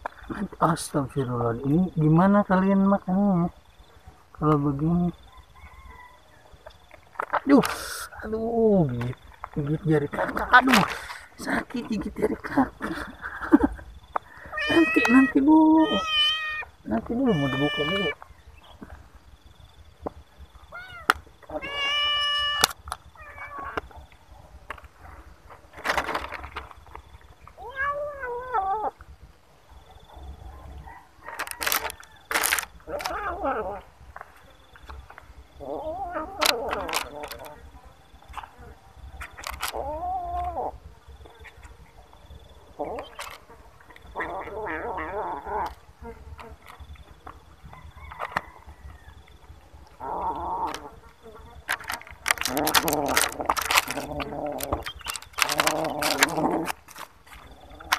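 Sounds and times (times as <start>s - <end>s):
kittens meowing: 14.3s - 18.2s, 20.7s - 24.0s, 27.4s - 29.0s, 31.6s - 34.0s, 35.6s - 37.7s, 39.3s - 40.8s, 44.0s - 45.9s, 49.9s - 51.1s, 51.8s - 56.8s.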